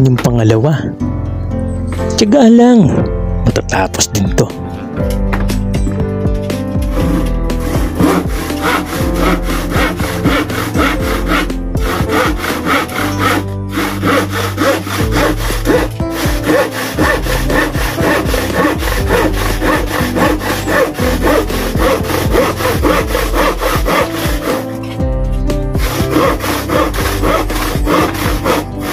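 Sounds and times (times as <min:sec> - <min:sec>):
hand saw cutting plywood: 0:06.9 - 0:28.9.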